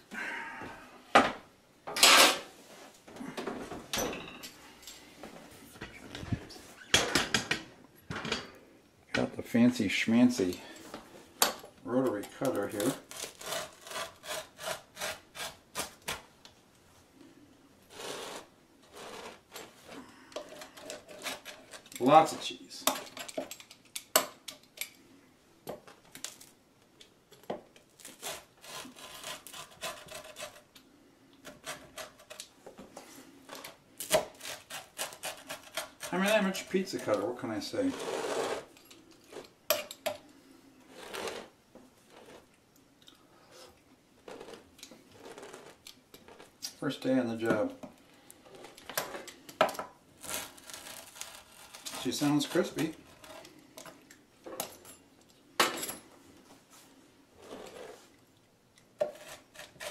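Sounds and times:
pizza cutter scraping wooden board: 12.5s - 16.2s, 17.9s - 19.8s, 28.0s - 30.7s, 33.6s - 38.7s, 50.2s - 53.5s, 59.0s - 59.9s
pizza cutter rolling through pizza: 17.9s - 23.2s, 50.2s - 53.5s.

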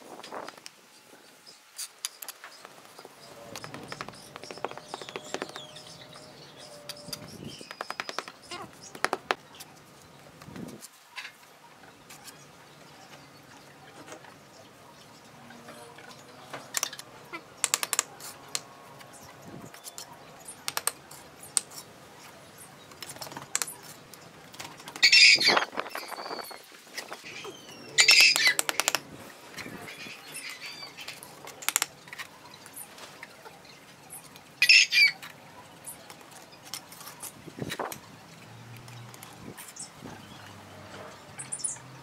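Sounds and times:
trowel tapping bricks: 3.5s - 5.7s, 7.0s - 9.4s, 17.6s - 18.1s, 20.6s - 21.8s, 28.1s - 29.0s, 31.6s - 31.9s.

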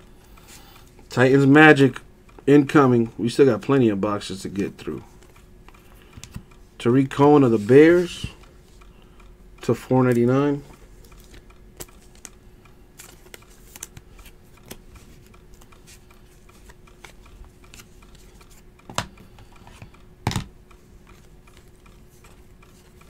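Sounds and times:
faint steady hum: 0.0s - 23.0s
trading cards clicking and sliding: 4.3s - 20.0s, 20.7s - 23.0s.

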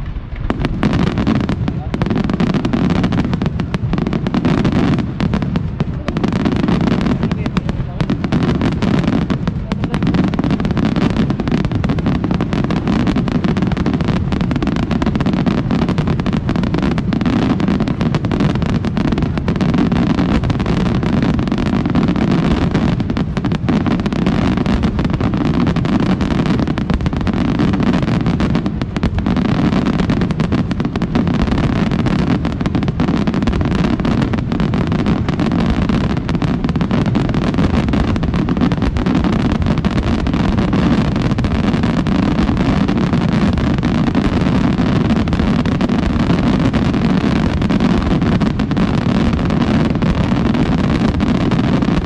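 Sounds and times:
fireworks bangs and crackles: 0.0s - 52.0s.

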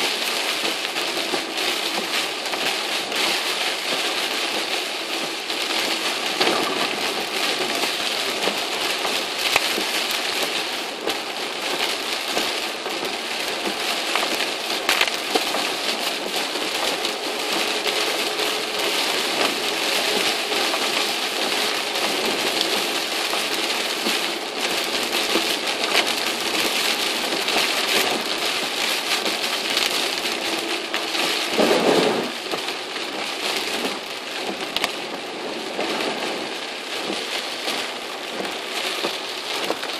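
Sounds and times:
heavy rain on a car: 0.0s - 39.9s.

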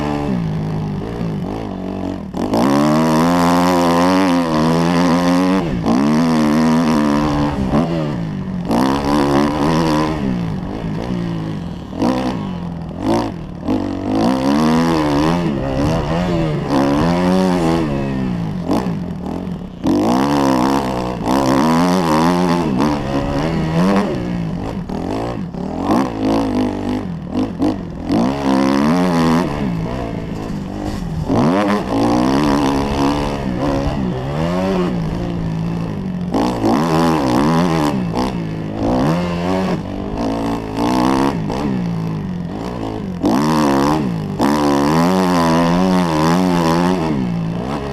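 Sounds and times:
motorcycle engine revving: 0.0s - 47.9s.

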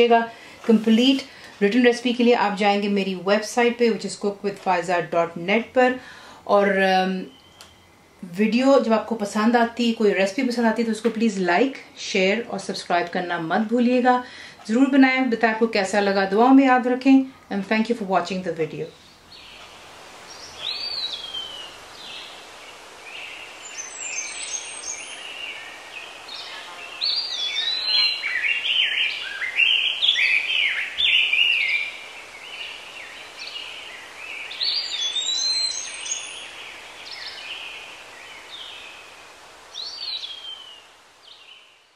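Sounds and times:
steady hiss: 0.0s - 41.9s
birds chirping and singing: 19.1s - 39.2s, 39.8s - 41.7s.

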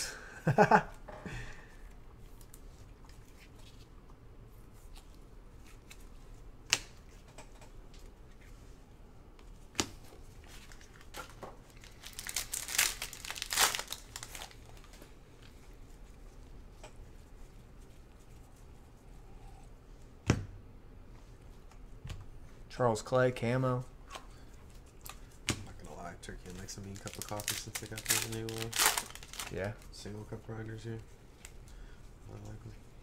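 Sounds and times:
foil pack tearing and crinkling: 10.6s - 14.9s, 26.6s - 29.7s.

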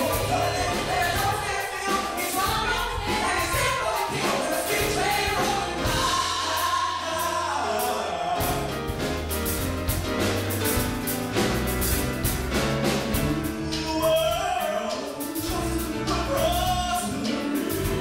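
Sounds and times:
man singing lead: 0.0s - 8.8s, 13.2s - 18.0s
backing vocalists singing: 0.0s - 9.0s, 13.3s - 18.0s
drum strokes: 0.0s - 18.0s
live band playing: 0.0s - 18.0s.

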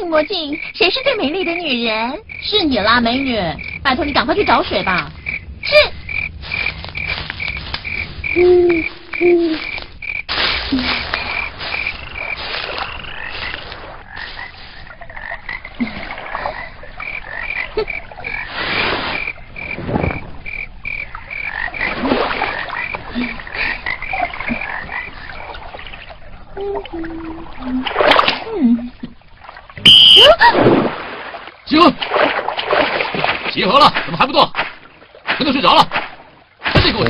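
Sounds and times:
low calls: 0.0s - 29.1s
frogs croaking: 0.0s - 37.0s
high pulsing chirp: 29.9s - 30.3s.

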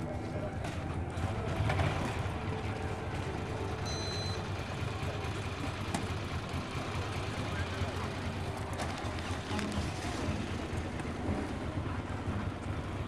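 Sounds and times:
crowd hubbub: 0.0s - 13.0s
motorcycle engines idling: 0.0s - 13.0s
short high beep: 3.8s - 4.5s.

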